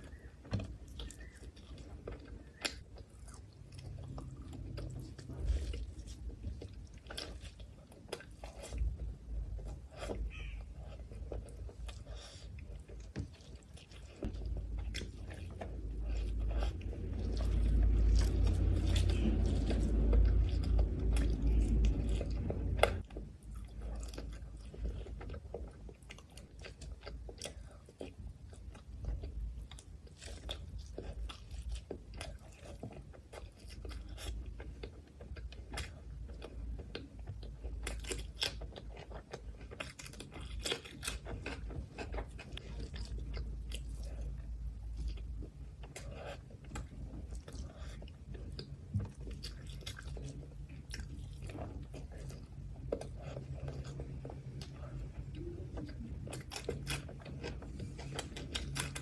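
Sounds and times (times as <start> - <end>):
person chewing food: 0.0 - 59.0.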